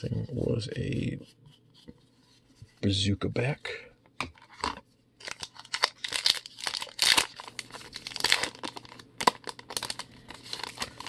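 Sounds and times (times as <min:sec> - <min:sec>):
card pack wrapper tearing: 0:05.2 - 0:11.0.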